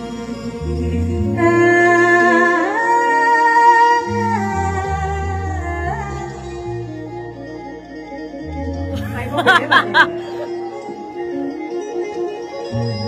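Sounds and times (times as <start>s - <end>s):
woman singing long notes: 0.0s - 7.1s
instrumental accompaniment: 0.0s - 13.0s.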